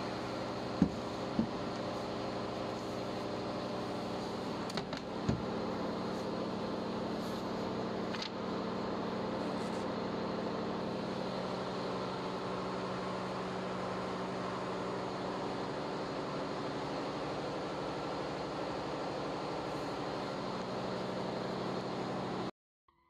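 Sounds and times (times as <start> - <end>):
engine-room machinery drone: 0.0 - 22.5.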